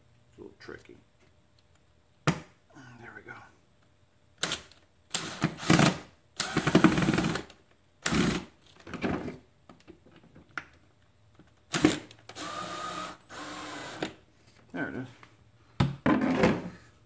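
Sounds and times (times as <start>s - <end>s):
rapid clicking of drill: 4.4s - 8.4s
cordless drill driving screw: 11.8s - 14.1s.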